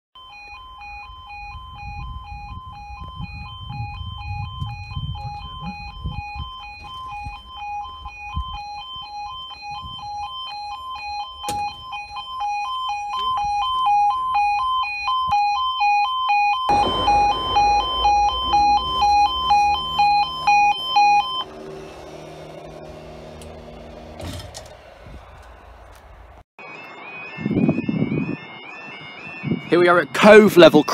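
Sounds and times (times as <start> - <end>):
two-tone warning alarm: 0.2 - 30.9
loud rushing noise: 16.7 - 26.4.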